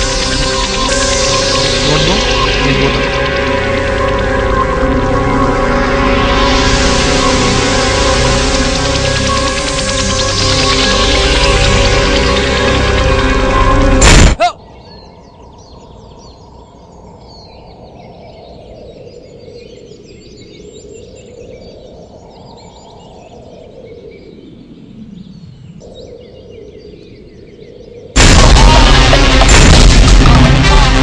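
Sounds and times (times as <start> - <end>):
birds chirping: 0.0 - 28.8
loud music: 28.2 - 31.0.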